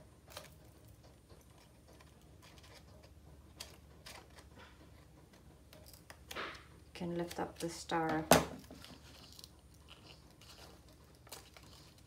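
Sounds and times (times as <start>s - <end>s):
scissors snipping paper: 5.3s - 12.0s.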